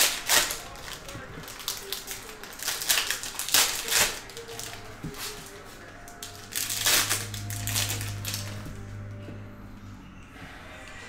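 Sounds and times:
low steady hum: 3.2 - 11.0.

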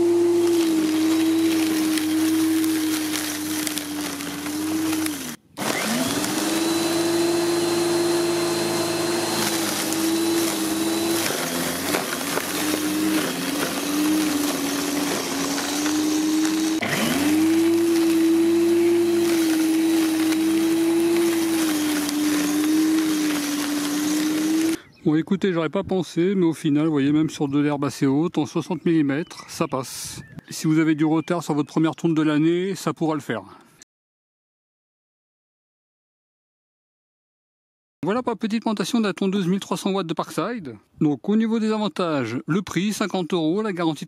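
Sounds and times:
electric lawnmower motor whine: 0.0 - 24.8.

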